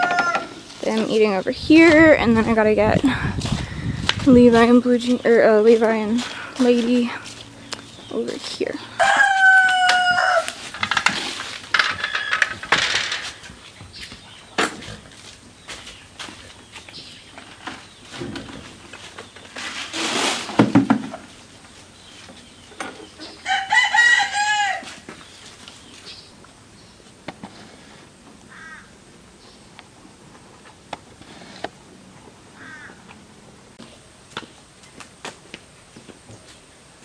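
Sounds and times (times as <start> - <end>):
rooster crowing: 0.0 - 0.6, 8.9 - 10.7, 23.4 - 25.0
short chicken calls: 9.0 - 10.6, 28.5 - 28.9, 32.6 - 33.1.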